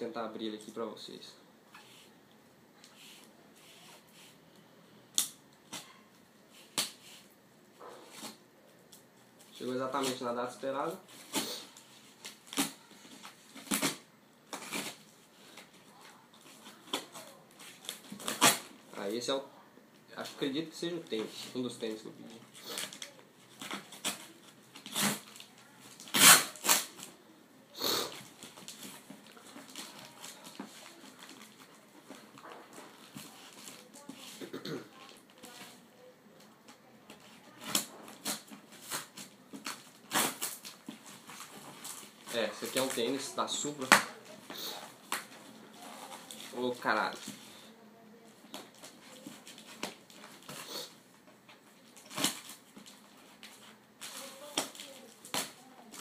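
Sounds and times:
cardboard ripping: 11.1s - 15.1s, 16.5s - 18.8s, 22.6s - 27.1s, 37.5s - 47.4s, 51.8s - 56.0s
fingers scratching packing tape: 22.6s - 27.0s, 37.2s - 42.0s.

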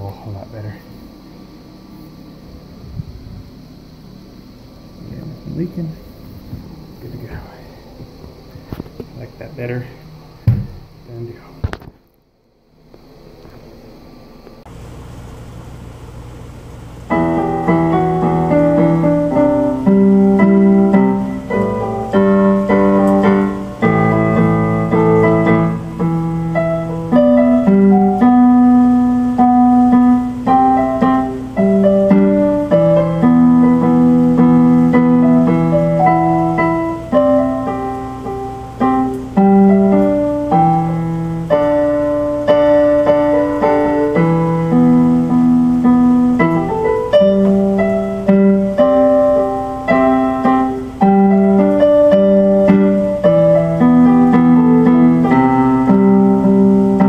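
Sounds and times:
electronic keyboard piano chords: 16.8s - 57.0s.

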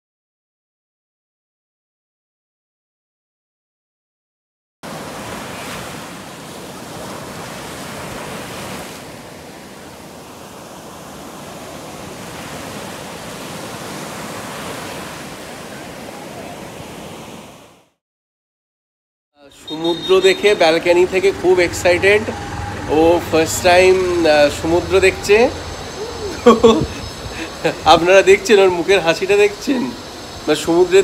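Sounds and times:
waves breaking on beach: 4.8s - 18.0s, 19.5s - 31.0s.

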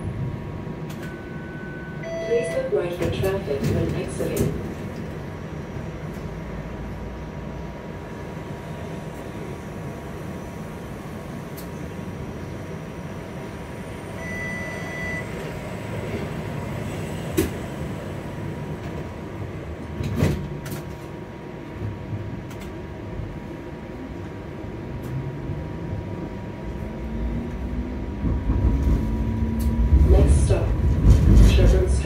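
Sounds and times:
streetcar running rumble: 0.0s - 32.0s
short beep: 1.0s - 2.7s, 14.2s - 15.4s.

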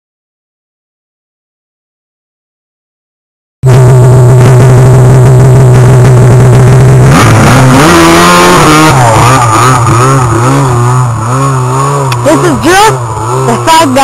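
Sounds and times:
snowmobile engine revving: 3.7s - 14.0s.

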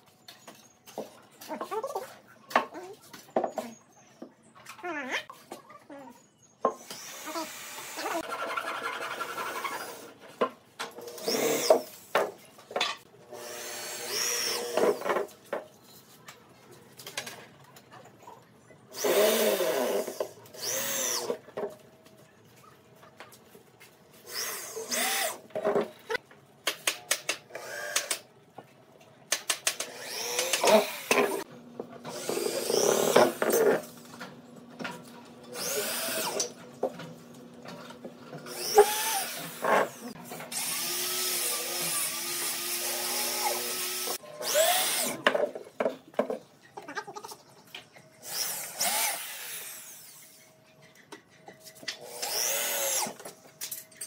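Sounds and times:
electric drill driving screws: 6.8s - 8.2s, 11.0s - 12.0s, 13.4s - 15.1s, 19.0s - 21.4s, 24.3s - 25.4s, 27.6s - 28.2s, 29.7s - 31.4s, 32.1s - 33.8s, 35.5s - 36.6s, 38.4s - 45.2s, 48.2s - 50.3s, 52.0s - 53.2s.

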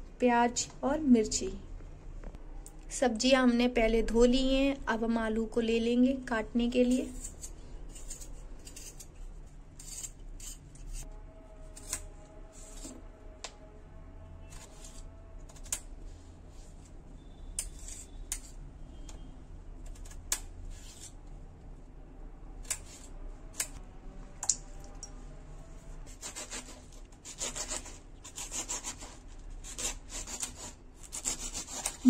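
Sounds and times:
knife shredding cabbage: 26.1s - 32.0s.

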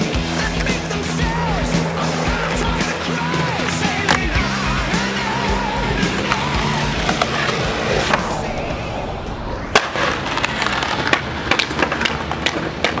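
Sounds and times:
skateboard wheels rolling on concrete: 0.0s - 13.0s
skateboard clacking on ground: 11.0s - 13.0s.

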